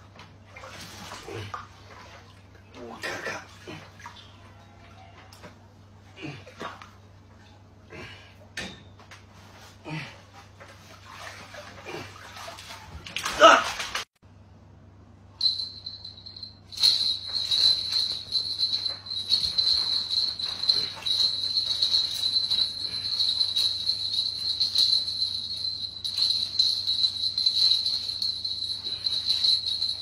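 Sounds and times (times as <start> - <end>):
high pulsing trill: 15.4 - 30.0
soft rustling: 15.6 - 30.0.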